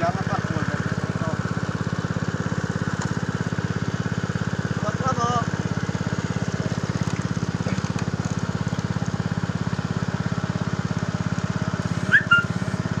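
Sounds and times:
small engine puttering: 0.0s - 13.0s
short high chirps: 12.0s - 12.6s.

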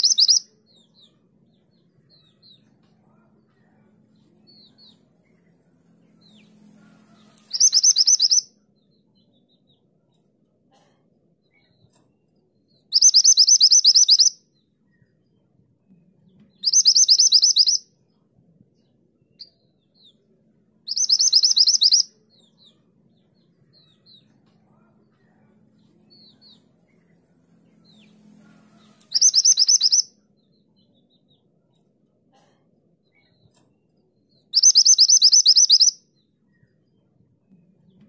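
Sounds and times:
bird singing high shrill notes: 0.0s - 0.5s, 7.5s - 8.5s, 13.0s - 14.4s, 16.7s - 17.8s, 20.9s - 22.1s, 29.1s - 30.1s, 34.6s - 36.0s.

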